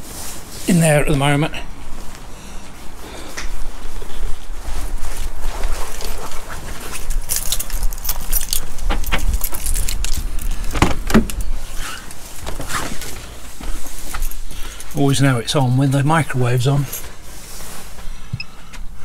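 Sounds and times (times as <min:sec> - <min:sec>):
footsteps: 0:01.7 - 0:15.0
door clicks and knocks: 0:10.7 - 0:11.4.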